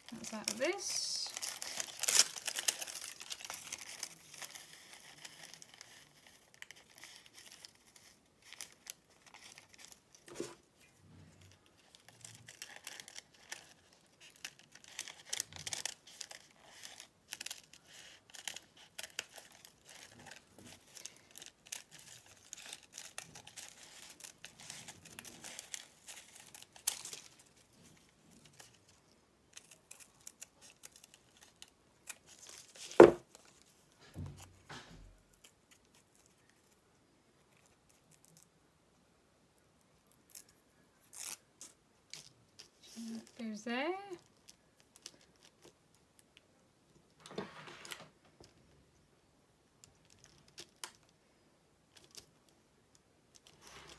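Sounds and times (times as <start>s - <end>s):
paper and fabric rustling: 0.0s - 36.8s, 53.4s - 53.9s.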